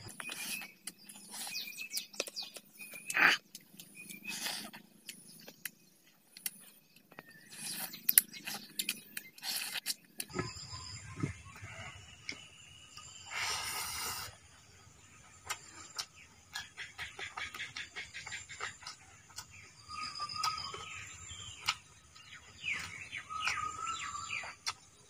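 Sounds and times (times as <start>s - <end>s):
wet chewing and lip smacks: 0.0s - 10.3s, 15.3s - 25.0s.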